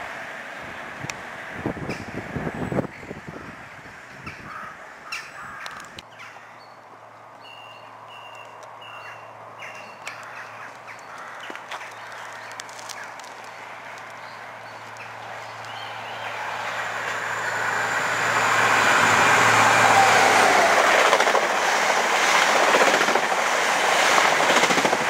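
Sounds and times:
train rail noise: 0.0 - 4.5, 6.8 - 25.0
bird high calls: 7.4 - 16.6.

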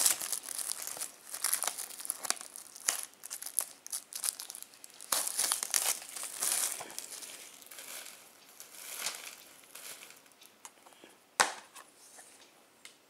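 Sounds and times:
plastic shrink-wrap crinkling: 0.0 - 10.4.

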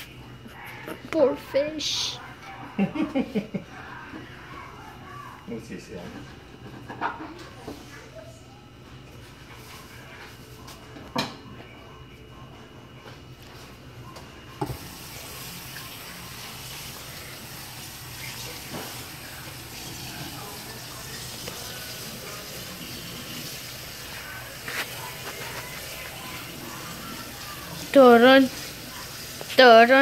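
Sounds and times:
faucet running into steel sink: 14.6 - 24.1.

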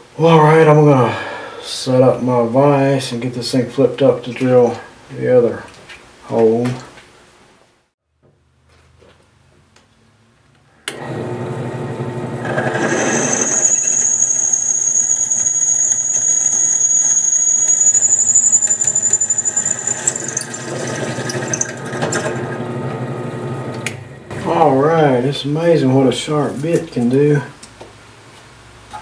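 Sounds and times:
drill press motor running: 10.9 - 24.4
drill bit squealing through metal: 12.4 - 22.6.

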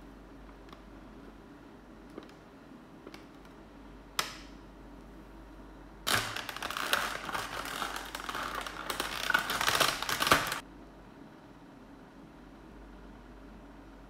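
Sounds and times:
plastic blister tray crackling: 6.1 - 10.6.

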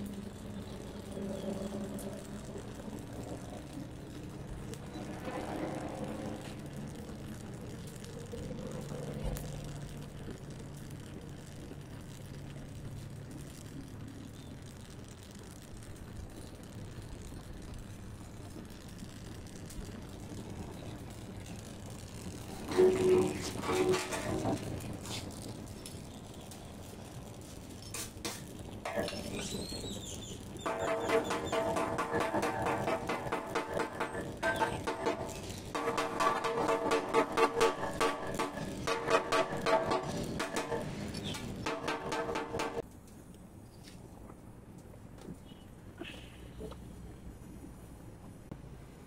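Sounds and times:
engine humming: 28.6 - 42.8.

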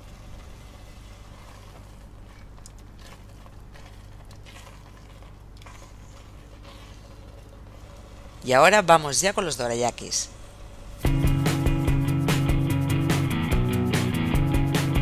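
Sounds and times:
bean paste bubbling in pot: 0.0 - 9.0
spatula scraping pot: 0.0 - 9.0
steady low hum: 0.0 - 15.0.

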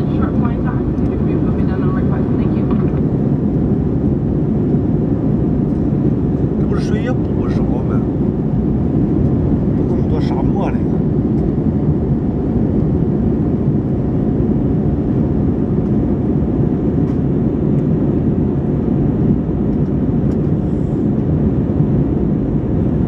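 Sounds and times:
jet engine and airflow rush: 0.0 - 23.0.

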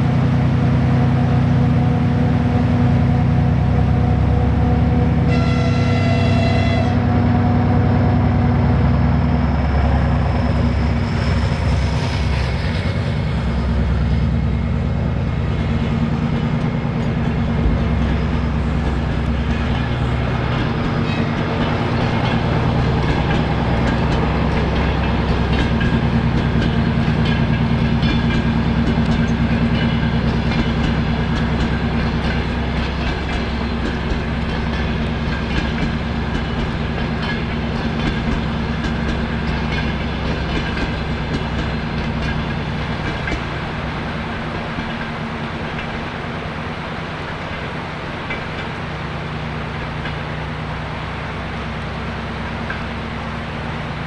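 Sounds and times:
coaches rumbling on rails: 0.0 - 54.0
diesel locomotive engine: 0.0 - 54.0
train horn blast: 3.5 - 8.0.

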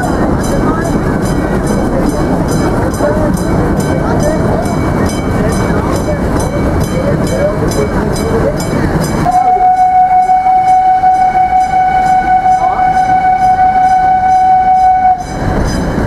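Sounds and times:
train rumbling on track: 0.0 - 16.0
locomotive signal horn: 9.2 - 15.5.

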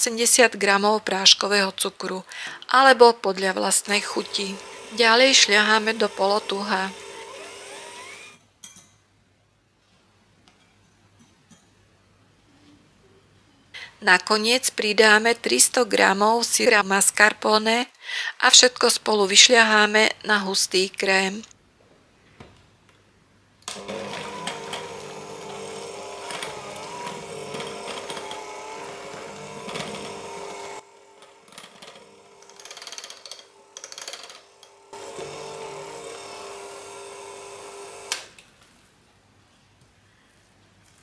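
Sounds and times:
electric hand mixer whirring: 3.6 - 8.4, 23.7 - 32.7, 33.5 - 38.3.

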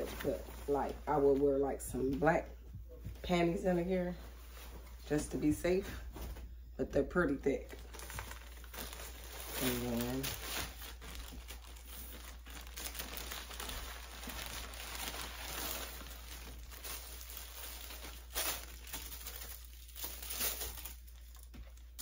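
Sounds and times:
plastic packaging crinkling: 7.5 - 22.0
sharp plastic crackles: 7.6 - 22.0.

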